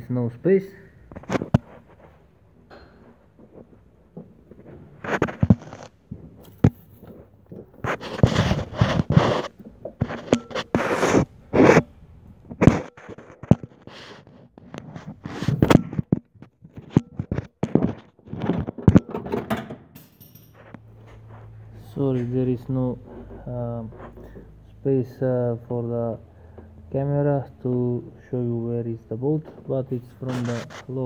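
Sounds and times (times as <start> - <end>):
scraping and rubbing in engine bay: 1.2 - 2.3, 3.0 - 19.0, 20.6 - 24.5, 29.5 - 31.0.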